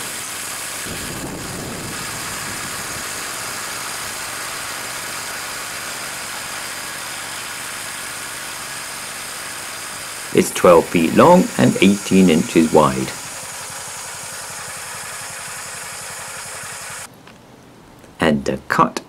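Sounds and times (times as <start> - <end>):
small petrol engine idling: 0.0 - 17.1.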